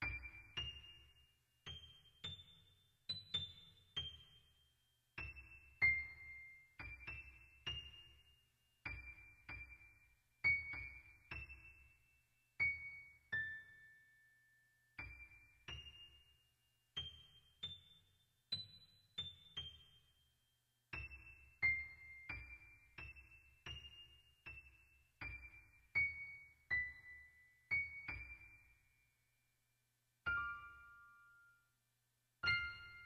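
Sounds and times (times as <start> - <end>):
slow keyboard melody: 30.3 - 31.8.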